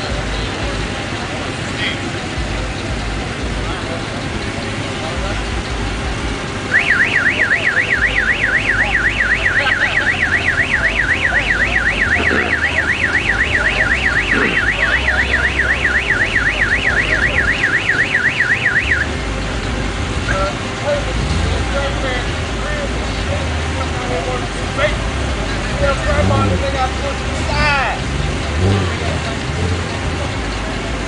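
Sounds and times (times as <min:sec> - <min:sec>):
low rumble of idling engines: 0:00.0 - 0:31.0
electronic alarm siren warbling: 0:06.8 - 0:19.1.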